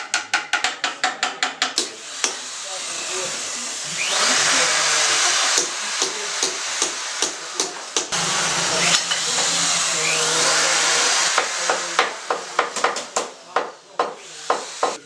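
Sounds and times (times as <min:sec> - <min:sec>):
small electric motor whirring: 0:02.1 - 0:12.5.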